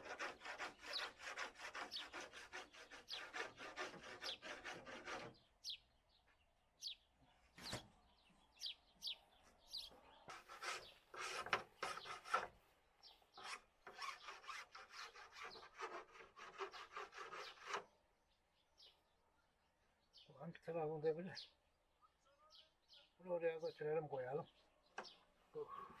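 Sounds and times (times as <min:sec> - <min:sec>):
scraping strokes: 0:00.0 - 0:05.4, 0:10.3 - 0:12.6, 0:13.4 - 0:17.8.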